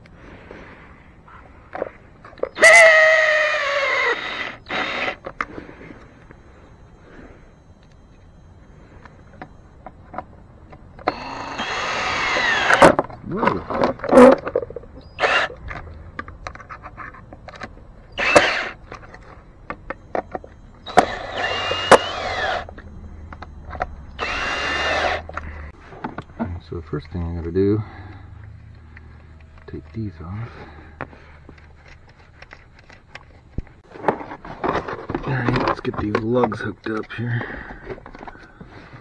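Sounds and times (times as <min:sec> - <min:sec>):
power drill driving screws: 0:02.6 - 0:05.2, 0:11.0 - 0:13.0, 0:15.2 - 0:15.6, 0:18.2 - 0:18.8, 0:20.8 - 0:22.7, 0:24.2 - 0:25.3.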